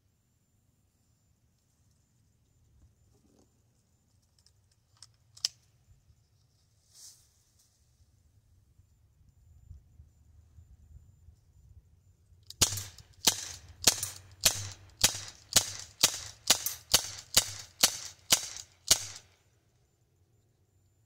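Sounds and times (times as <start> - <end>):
air pistol pops: 12.5 - 19.3.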